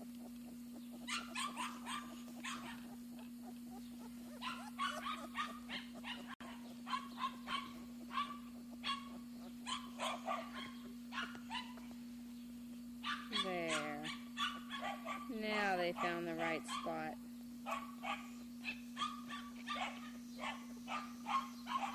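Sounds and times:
puppies yelping and whimpering: 0:00.0 - 0:11.9.

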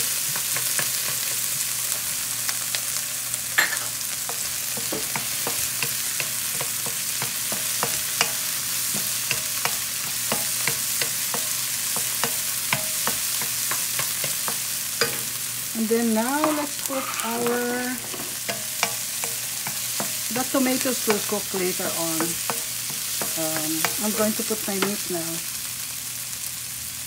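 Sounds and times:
food sizzling in a frying pan: 0:00.0 - 0:27.0
utensil scraping a pan: 0:16.4 - 0:25.1.

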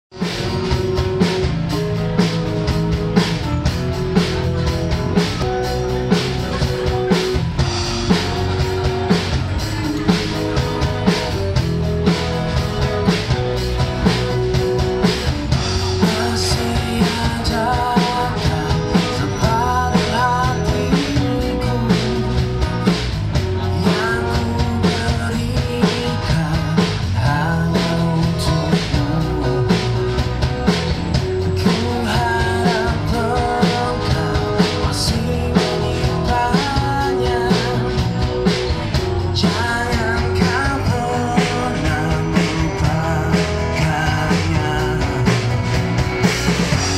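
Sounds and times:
acoustic guitar: 0:00.1 - 0:46.9
drum kit: 0:00.1 - 0:46.9
man singing into microphone: 0:15.8 - 0:22.9, 0:23.6 - 0:30.4, 0:31.4 - 0:38.4, 0:39.3 - 0:45.7.

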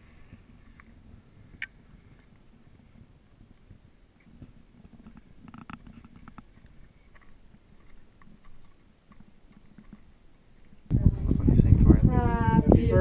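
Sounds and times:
low muffled rumble: 0:10.9 - 0:13.0.

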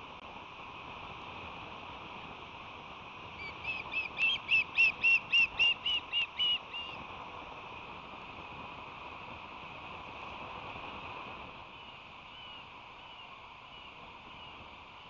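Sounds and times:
steady background hiss: 0:00.0 - 0:15.0
osprey whistled chirps: 0:03.4 - 0:07.0.

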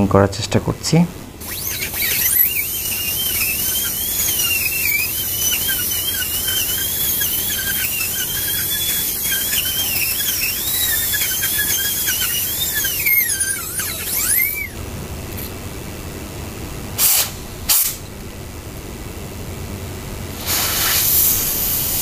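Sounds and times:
dental drill whining: 0:01.4 - 0:14.8, 0:20.4 - 0:22.0.

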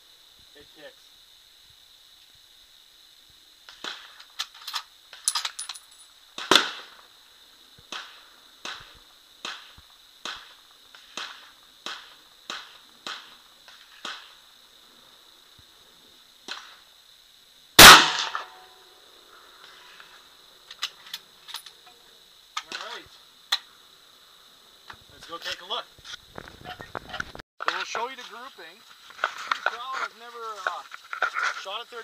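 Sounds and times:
loud rifle shot ringing: 0:17.8 - 0:18.6.

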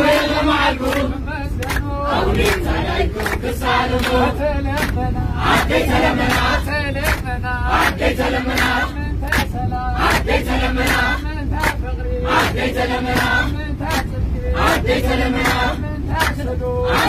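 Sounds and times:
bus engine rumble: 0:00.0 - 0:17.0
group singing a hymn: 0:00.0 - 0:17.0
hand claps: 0:01.6 - 0:04.2, 0:04.8 - 0:05.0, 0:06.3 - 0:08.0, 0:09.3 - 0:11.8, 0:16.2 - 0:16.4.

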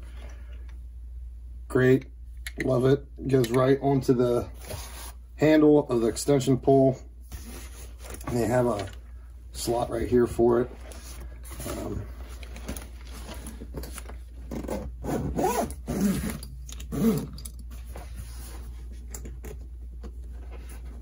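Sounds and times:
zipper being pulled: 0:14.5 - 0:17.4.

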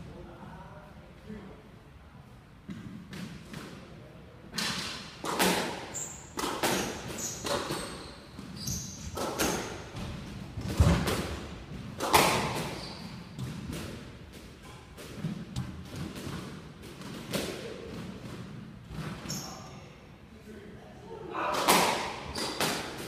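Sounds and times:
squash ball hits: 0:04.6 - 0:19.3, 0:21.5 - 0:23.0
shoes squeaking on wooden floor: 0:05.9 - 0:09.7, 0:12.6 - 0:13.4.

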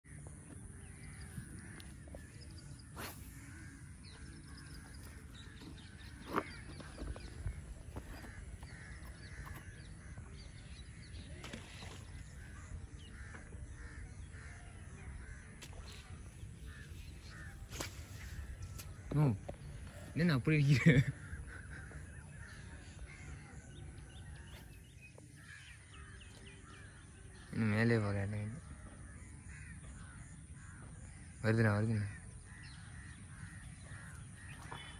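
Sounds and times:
crows cawing: 0:08.0 - 0:10.4, 0:12.6 - 0:15.8, 0:28.6 - 0:34.9.

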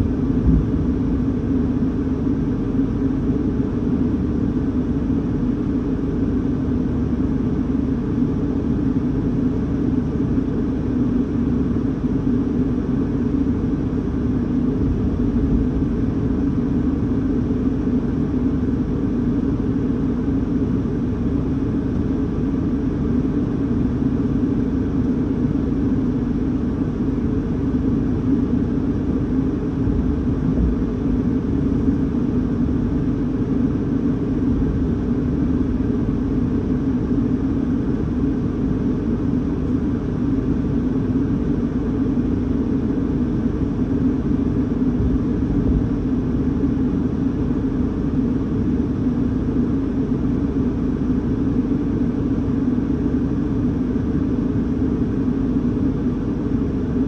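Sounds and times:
car cabin rumble: 0:00.0 - 0:03.0, 0:14.8 - 0:17.4, 0:28.8 - 0:36.6, 0:44.7 - 0:46.6.

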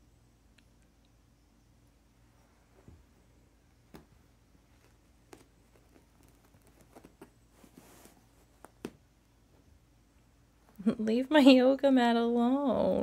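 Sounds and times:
cat paws tapping and scratching rug: 0:02.6 - 0:09.9.

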